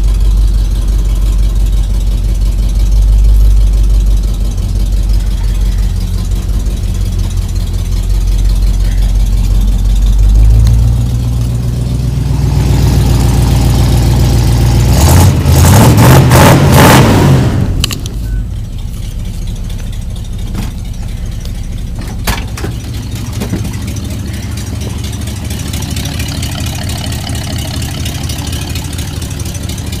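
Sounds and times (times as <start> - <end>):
engine idling and revving: 0.0 - 30.0
sharp clicks: 17.8 - 18.2.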